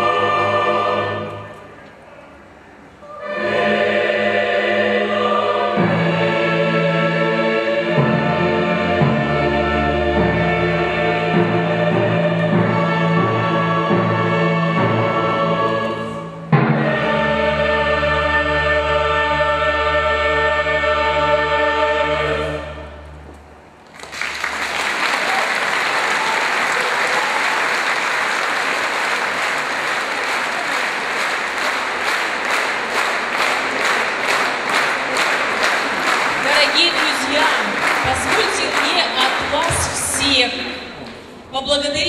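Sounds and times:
choir and orchestra chord: 0.0 - 1.8, 3.0 - 23.4
audience applause: 23.9 - 39.8.

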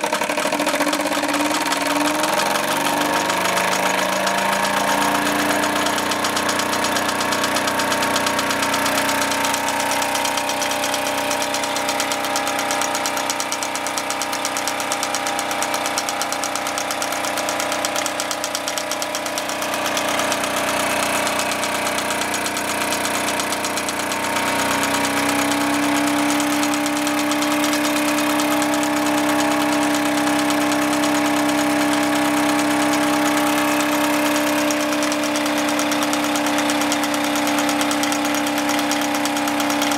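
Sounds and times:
toy steam engine running fast: 0.0 - 39.9
whirring hum of model machines: 0.0 - 39.9.

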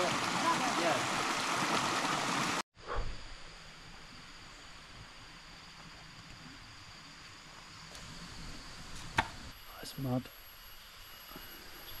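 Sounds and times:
rushing stream water: 0.0 - 2.6
high-pitched insect drone: 3.2 - 12.0.

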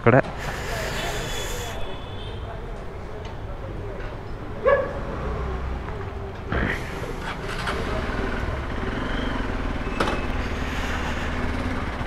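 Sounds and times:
motorcycle engine running: 5.9 - 12.0.

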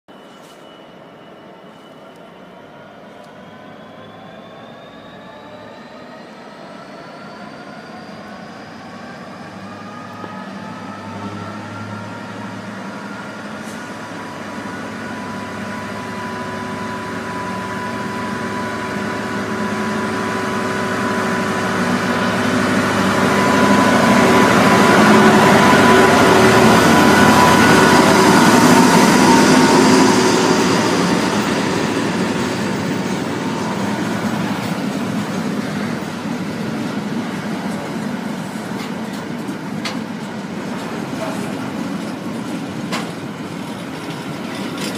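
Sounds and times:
diesel locomotive engine working hard: 0.1 - 44.9
container wagons rumbling: 21.8 - 44.9.

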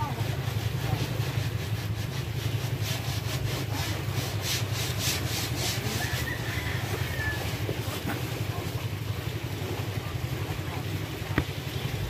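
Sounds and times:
paintbrush scrubbing on wood: 0.0 - 12.0.

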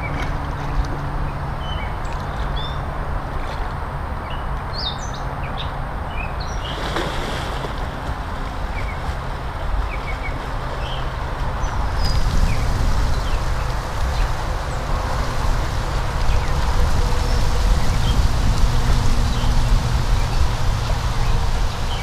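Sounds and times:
wind rumble on microphone: 0.0 - 22.0
water sloshing from swimming: 5.8 - 22.0.

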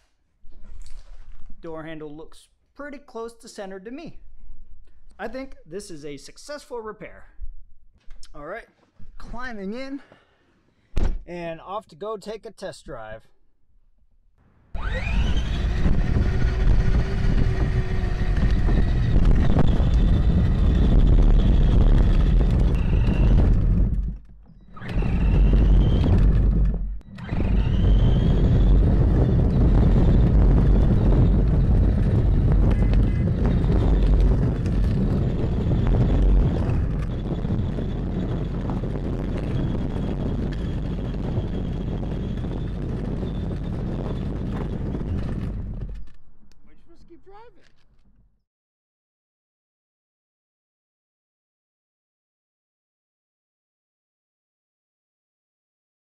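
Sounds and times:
toy car wheels rumbling on asphalt: 14.8 - 46.2.

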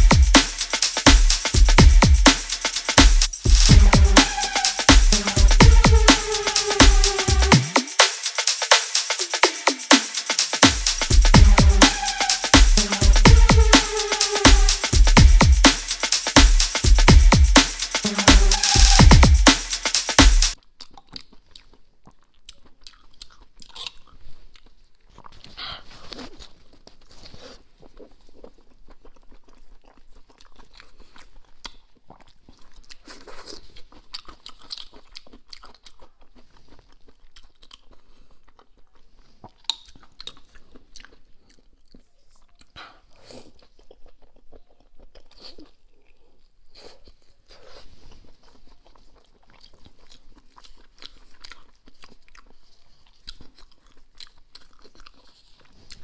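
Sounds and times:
wet chewing and lip smacking: 20.6 - 47.2, 48.2 - 56.0.

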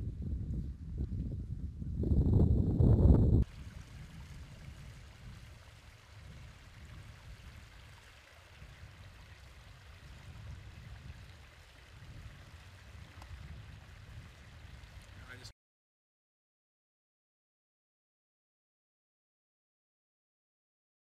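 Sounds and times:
water trickling: 3.4 - 15.5.

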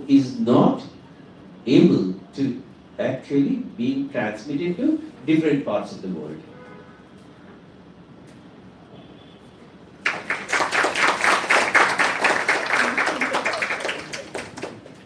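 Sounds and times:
audience applauding: 10.0 - 15.0.

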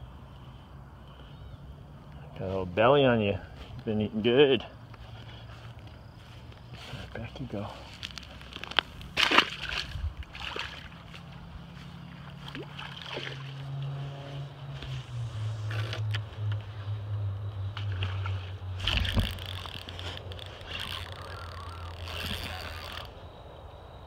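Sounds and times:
steady low hum: 0.0 - 24.0
fish splashing into water: 9.2 - 11.0, 12.4 - 13.6.

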